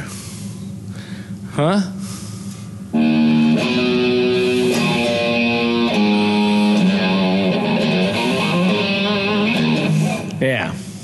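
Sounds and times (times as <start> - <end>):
guitar held notes: 2.9 - 10.5.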